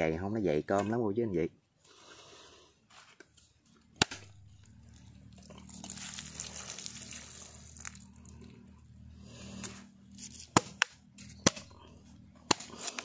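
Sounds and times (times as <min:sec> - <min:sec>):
machete striking coconut: 0:04.0 - 0:04.4, 0:10.5 - 0:11.8, 0:12.4 - 0:13.0
coconut water splashing on ground: 0:04.0 - 0:08.7.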